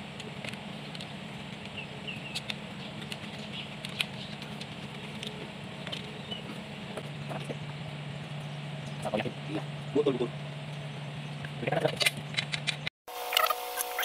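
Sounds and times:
steady low hum: 0.0s - 12.9s.

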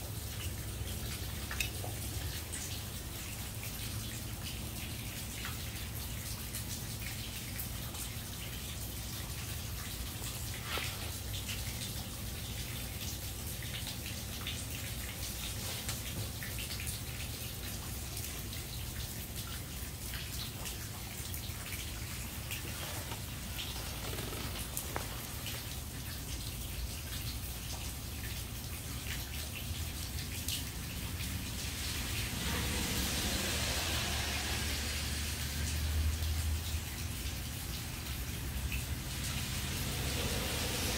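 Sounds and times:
water drips ticking: 0.0s - 32.5s, 35.4s - 40.9s
steady rain falling: 0.0s - 40.9s
car passing on wet street: 21.5s - 26.5s, 30.8s - 40.9s.

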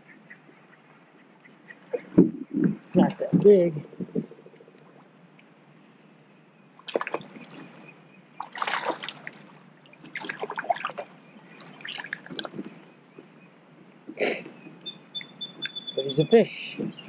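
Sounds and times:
fish splashing at water surface: 6.9s - 7.4s, 8.4s - 9.4s, 10.0s - 11.1s.

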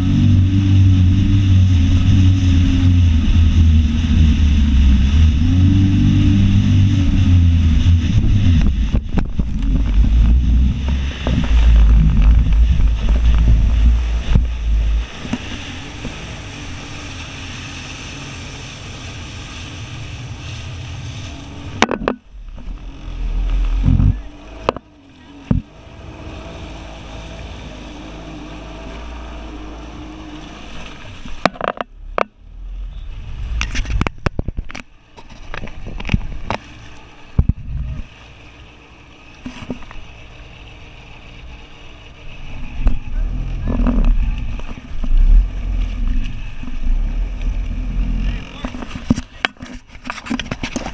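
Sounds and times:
jet ski engine: 0.0s - 50.9s
water and wind rushing: 0.0s - 50.9s
hull knocking on waves: 7.3s - 16.5s, 21.7s - 25.8s, 31.2s - 32.5s.

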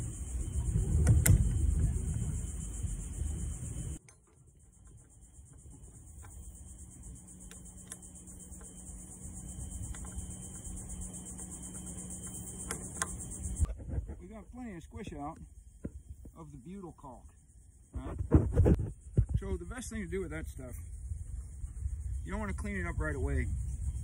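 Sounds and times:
high-pitched insect buzz: 0.0s - 13.7s.

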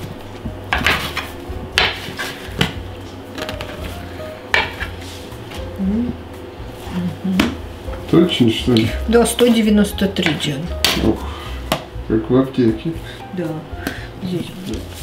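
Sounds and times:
utensils knocking on worktop: 4.5s - 4.9s.

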